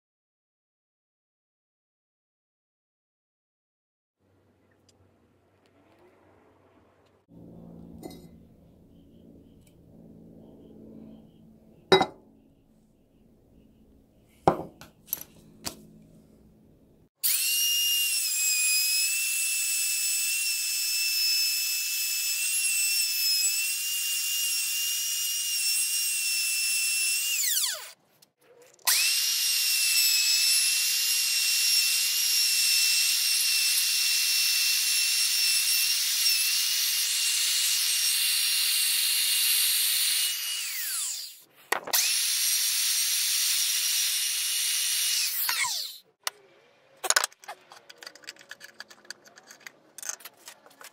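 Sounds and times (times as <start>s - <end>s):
electric router whine: 7.3s - 12.0s, 17.2s - 28.0s, 28.8s - 46.0s.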